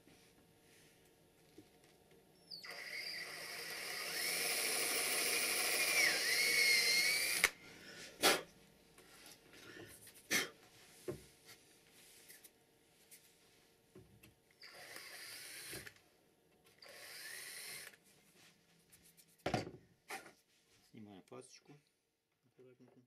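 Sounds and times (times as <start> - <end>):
power drill whining: 2.4 - 7.6, 14.6 - 16.0, 16.8 - 18.0.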